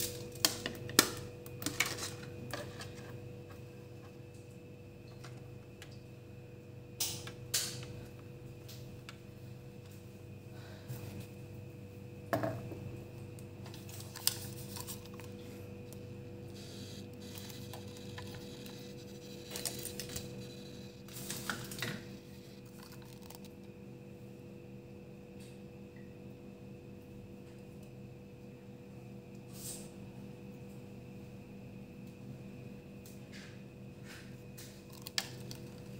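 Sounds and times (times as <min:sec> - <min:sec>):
steady hum: 0:00.0 - 0:26.9.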